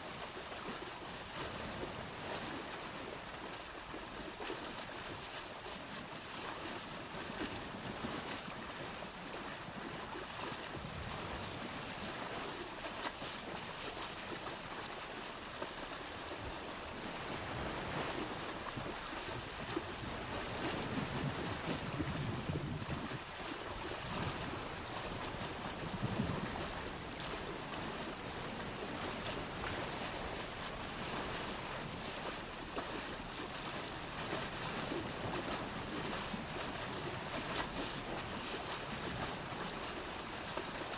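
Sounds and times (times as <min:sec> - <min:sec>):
wind on microphone: 0:16.5 - 0:32.4.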